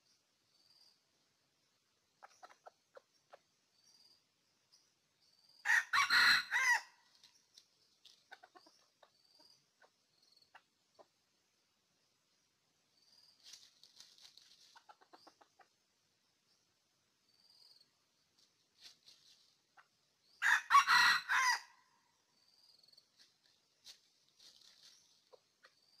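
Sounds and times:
rooster crowing: 0:05.6 - 0:07.0, 0:20.4 - 0:21.8.

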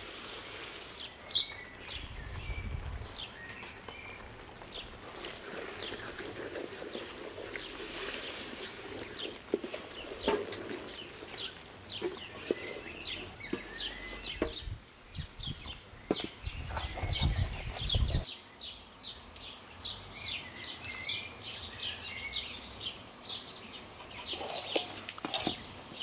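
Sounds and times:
small birds chirping: 0:00.3 - 0:26.0
wooden spoon scraping thick mixture: 0:03.4 - 0:14.4, 0:16.2 - 0:18.3, 0:24.0 - 0:25.7.

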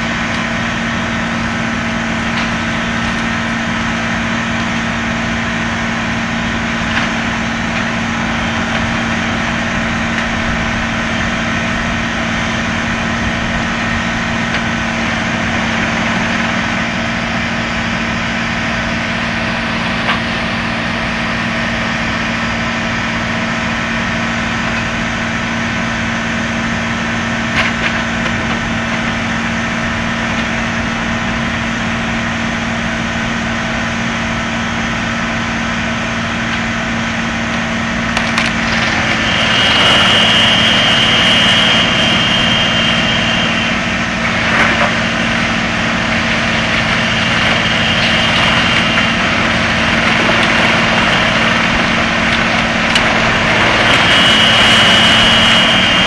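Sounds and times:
diesel tractor engine: 0:00.0 - 0:56.0
high whine: 0:00.0 - 0:56.0
wood chipper knocks: 0:44.3 - 0:54.1.

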